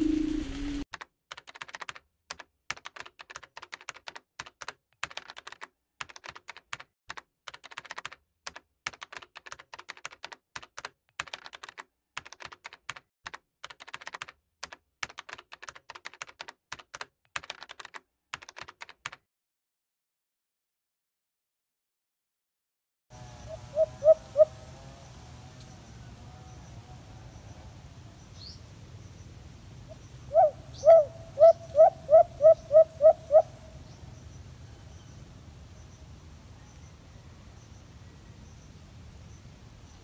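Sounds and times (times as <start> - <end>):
computer keyboard typing: 0.9 - 19.2.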